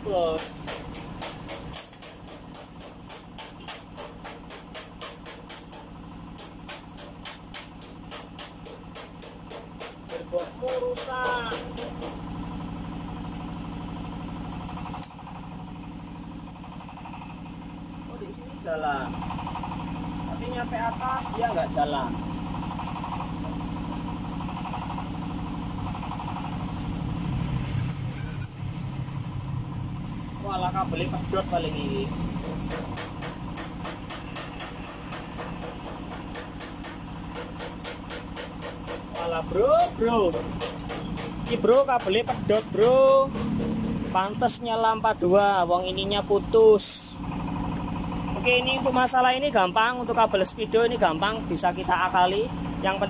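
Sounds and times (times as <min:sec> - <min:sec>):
motorcycle engine idling: 0:05.7 - 0:37.6, 0:47.1 - 0:51.5.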